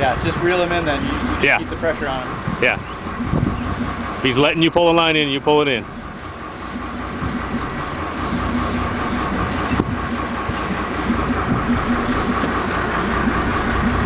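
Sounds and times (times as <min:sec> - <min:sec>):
boat engine idling: 0:00.0 - 0:14.0
steady hum: 0:00.0 - 0:14.0.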